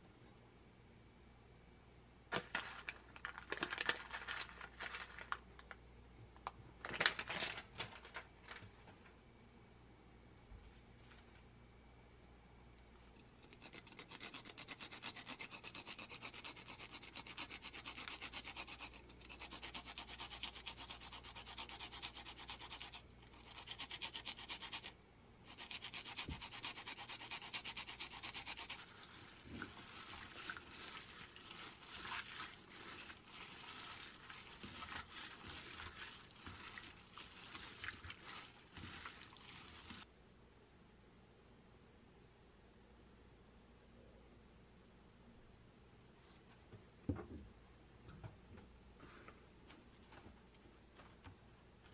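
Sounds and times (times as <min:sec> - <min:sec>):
garlic grating on plastic grater: 0:13.2 - 0:40.0
wet rubbing of meat in marinade: 0:25.5 - 0:40.1.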